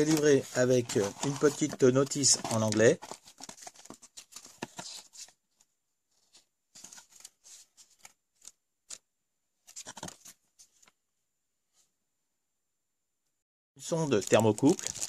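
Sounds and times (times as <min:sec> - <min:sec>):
paper rustling and page flips: 0:00.0 - 0:09.0, 0:09.6 - 0:11.0, 0:14.2 - 0:15.0.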